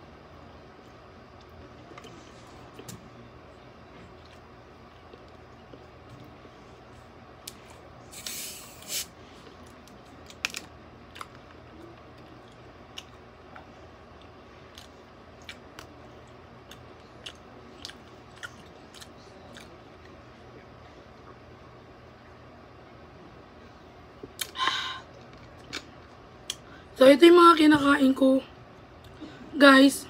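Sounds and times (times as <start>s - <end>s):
chewing crunchy food: 3.9s - 7.8s, 9.3s - 21.5s, 24.2s - 26.6s
soda bottle opening hiss: 8.1s - 9.1s.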